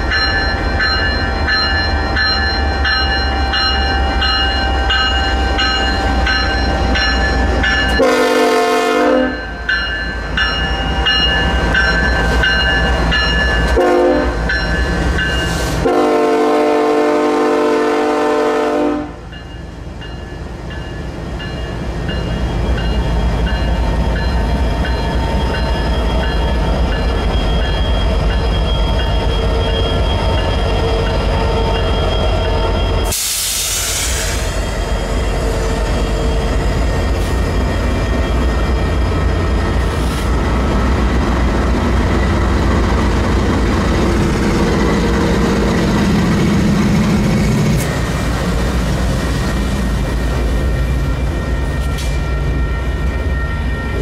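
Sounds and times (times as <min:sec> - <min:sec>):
diesel locomotives rumbling past: 0:00.0 - 0:54.0
train horn blasts: 0:07.9 - 0:09.4, 0:13.7 - 0:14.4, 0:15.7 - 0:19.3.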